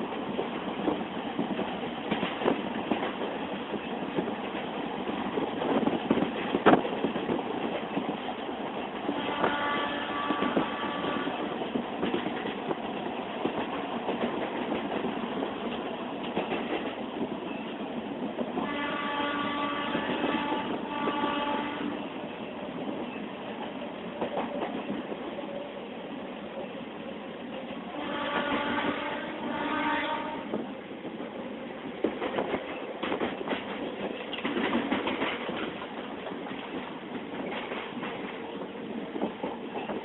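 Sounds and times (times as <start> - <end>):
train horn blasts: 9.1 - 11.5, 18.6 - 22.0, 27.9 - 30.6
wheels clattering over rail joints: 32.0 - 38.5.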